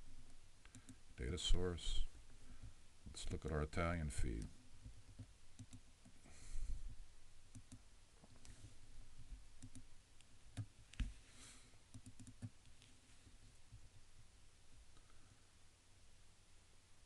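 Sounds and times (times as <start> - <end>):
computer mouse clicking: 0.6 - 1.0, 5.1 - 6.3, 7.5 - 8.6, 9.6 - 9.9, 11.9 - 12.8.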